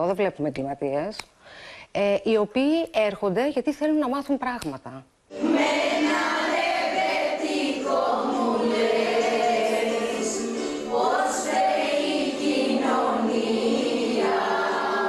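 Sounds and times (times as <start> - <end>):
women's choir singing: 5.3 - 15.0.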